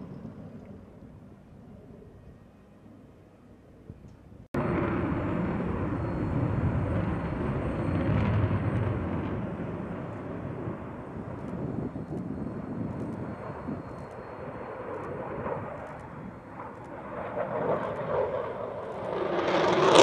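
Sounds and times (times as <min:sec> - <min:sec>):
jet engines roaring: 0:04.5 - 0:20.0.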